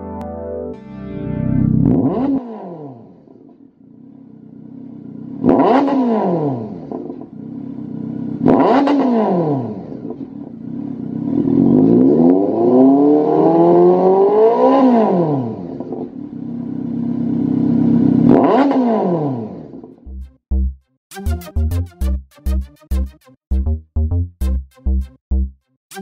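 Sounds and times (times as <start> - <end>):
motorcycle engine revving: 1.6 - 20.1.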